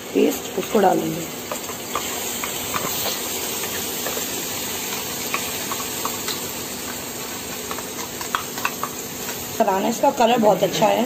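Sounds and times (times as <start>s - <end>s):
oil sizzling in frying pan: 0.0s - 11.0s
steel spoon clicking on pan: 7.7s - 9.4s.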